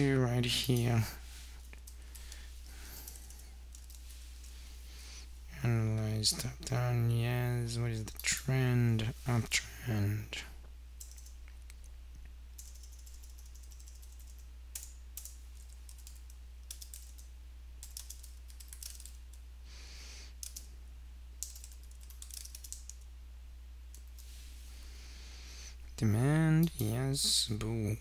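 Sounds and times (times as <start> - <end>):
steady low hum: 0.0 - 28.0
typing on keyboard: 3.0 - 4.0, 11.0 - 11.4, 12.6 - 19.2, 20.4 - 20.7, 21.4 - 23.0.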